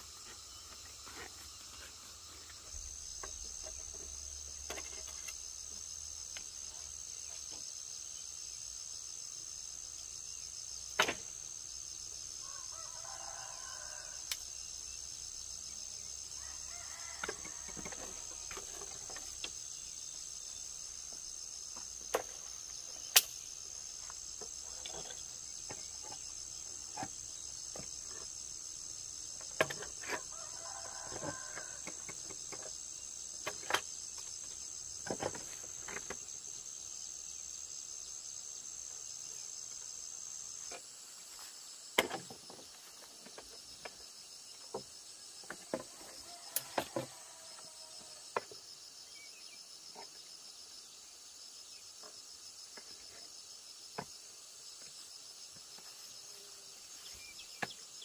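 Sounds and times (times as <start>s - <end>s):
crickets chirring: 0.0s - 58.0s
rooster crowing: 12.4s - 14.3s, 16.4s - 18.5s, 30.3s - 31.9s, 46.2s - 48.2s.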